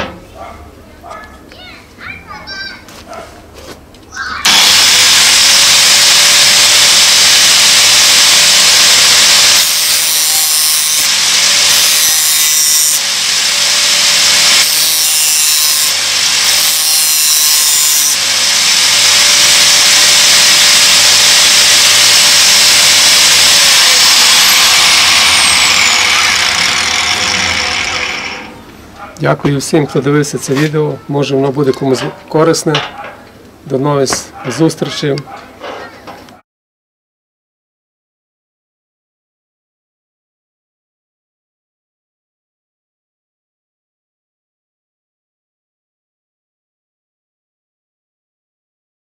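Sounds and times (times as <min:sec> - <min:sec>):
angle grinder motor whine: 0:04.4 - 0:28.6
grinder grinding metal: 0:04.4 - 0:28.6.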